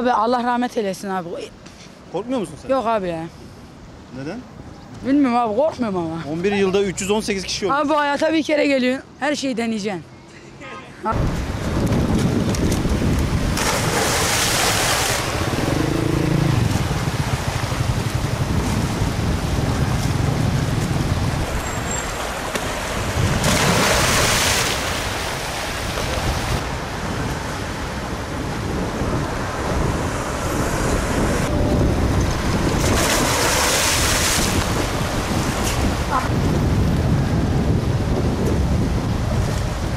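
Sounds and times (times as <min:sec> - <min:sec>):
wind: 0:00.0 - 0:39.9
water rushing: 0:12.7 - 0:36.4.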